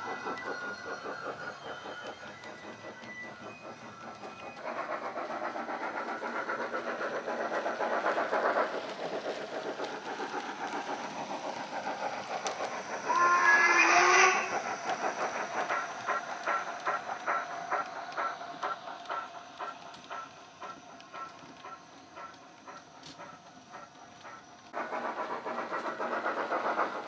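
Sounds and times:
steam locomotive exhaust chuffs: 0.0s - 27.0s
train whistle: 13.0s - 15.0s.

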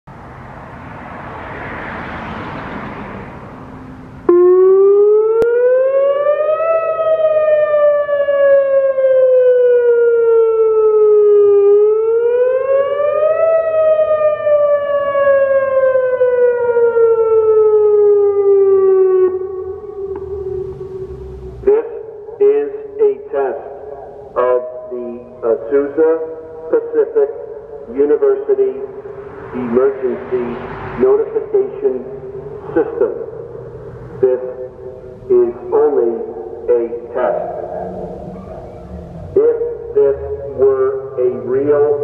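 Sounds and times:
electronic siren wailing: 4.3s - 21.7s, 36.9s - 42.0s.

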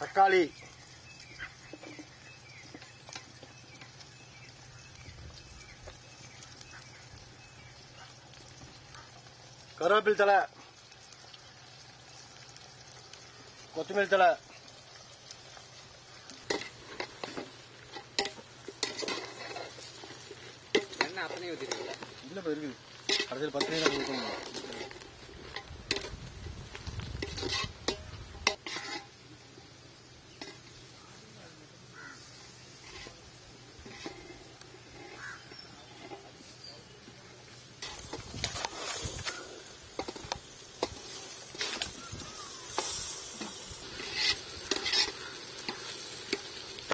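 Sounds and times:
dry palm frond rustling and snapping: 23.0s - 28.7s, 37.8s - 46.9s.

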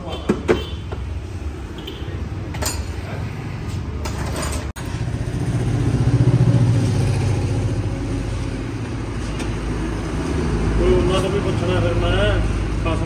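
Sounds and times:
vehicle engine passing by: 4.8s - 12.8s.

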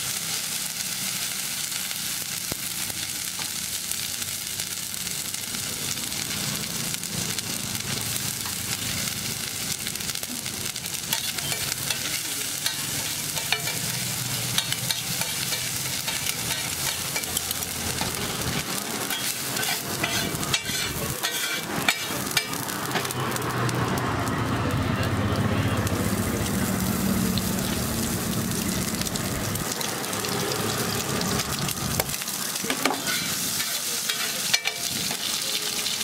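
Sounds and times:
oil sizzling on griddle: 0.0s - 36.0s
spatula scraping griddle: 11.1s - 23.2s, 32.6s - 35.3s.

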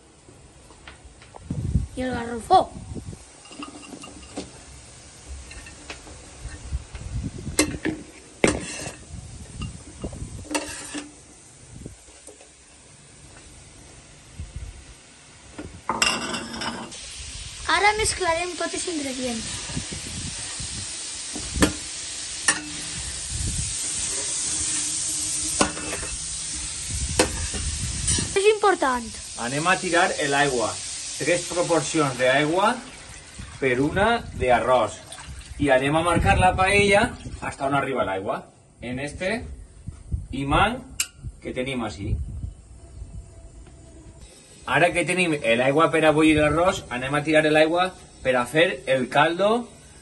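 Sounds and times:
food sizzling in a pan: 1.9s - 38.1s, 44.2s - 50.0s
utensils clinking on pan: 3.4s - 4.5s, 9.6s - 11.2s, 15.9s - 17.0s, 22.4s - 22.9s, 25.5s - 26.2s.

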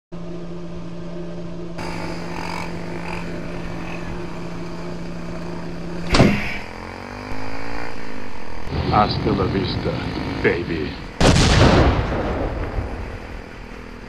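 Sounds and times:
motorcycle passing by: 0.2s - 11.2s, 11.8s - 14.0s
motorcycle engine idling: 1.8s - 11.2s.

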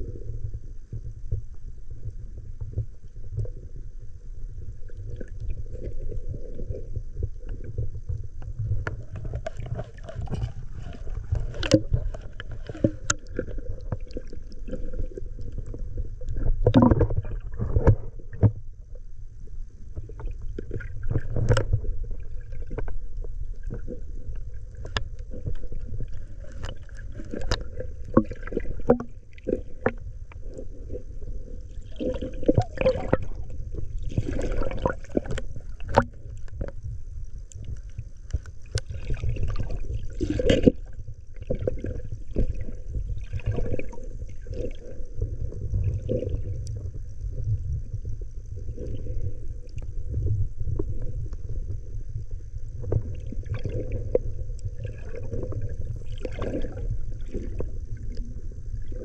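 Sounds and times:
underwater water rumble: 0.0s - 59.0s
underwater clicks and knocks: 7.2s - 18.7s, 19.9s - 30.5s, 31.9s - 44.7s.

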